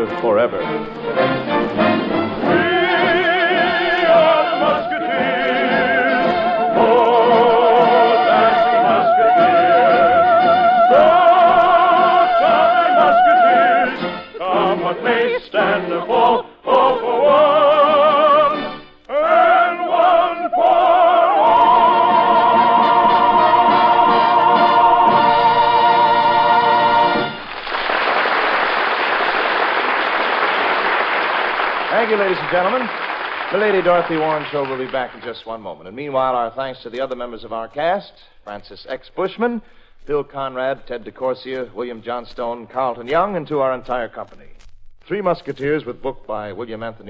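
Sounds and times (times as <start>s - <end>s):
orchestra: 0.0s - 35.4s
operatic singing with vibrato: 0.6s - 27.5s
choir: 2.4s - 27.4s.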